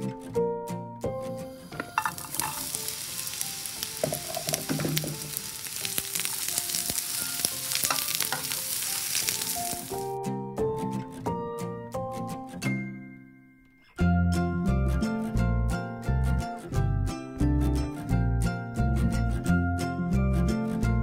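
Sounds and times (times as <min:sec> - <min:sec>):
music: 0:00.0 - 0:21.0
onions sizzling in a frying pan: 0:01.5 - 0:10.1
wooden spoon scraping a pan: 0:01.6 - 0:10.0.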